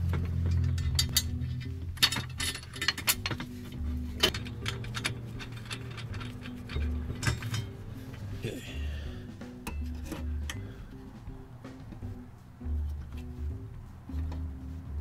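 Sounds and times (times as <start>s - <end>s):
quiet background music: 0.0s - 15.0s
metallic clicks and clinks: 0.5s - 3.5s, 4.2s - 7.7s.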